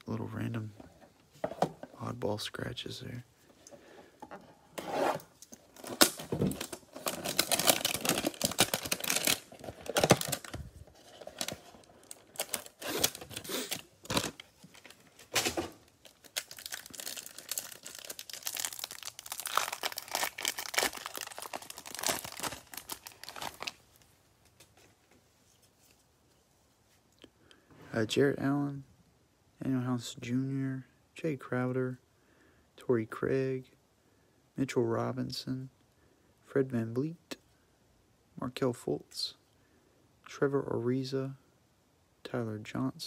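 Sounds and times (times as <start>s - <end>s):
plastic wrapping tearing and crinkling: 5.6s - 24.1s.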